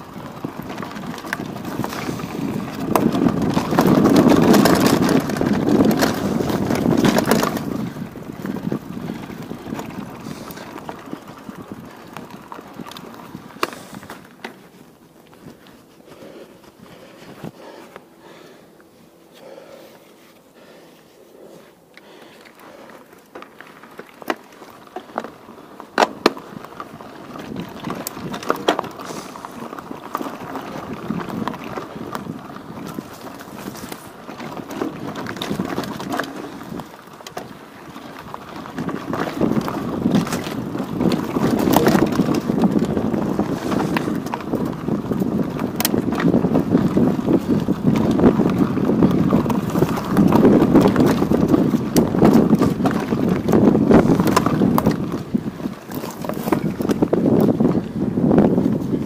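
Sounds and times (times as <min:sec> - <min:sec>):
wind buffeting microphone: 0:00.0 - 0:14.3, 0:26.4 - 0:59.0.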